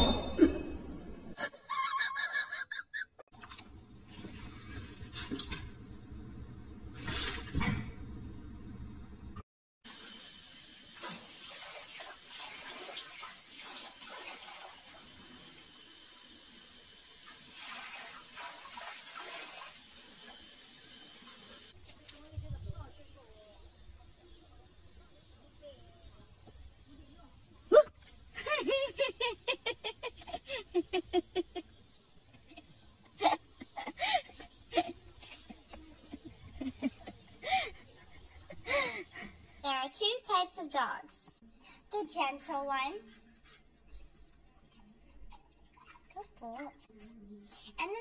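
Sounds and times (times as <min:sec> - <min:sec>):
person laughing: 0:01.4 - 0:03.2, 0:28.4 - 0:31.7, 0:33.2 - 0:39.2.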